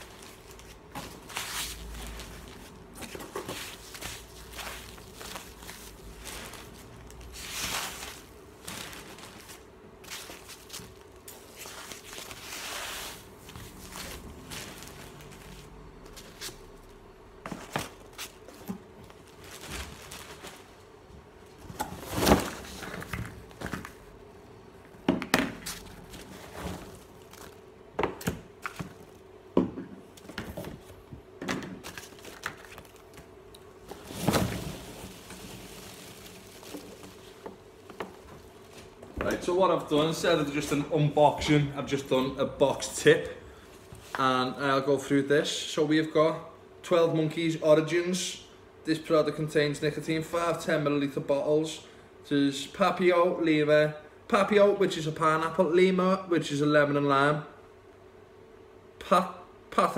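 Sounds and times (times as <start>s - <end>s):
packing peanuts rustling: 0.0s - 16.8s, 17.6s - 20.8s, 31.8s - 39.0s
box contents knocking and thudding: 21.6s - 24.0s, 33.8s - 39.5s.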